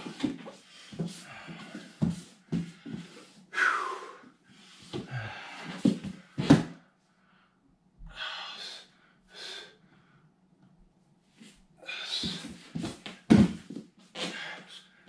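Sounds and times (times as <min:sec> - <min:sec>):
man breathing hard: 0:00.0 - 0:06.5, 0:07.2 - 0:10.3, 0:11.8 - 0:13.0
thump on foam mats: 0:12.8 - 0:13.7.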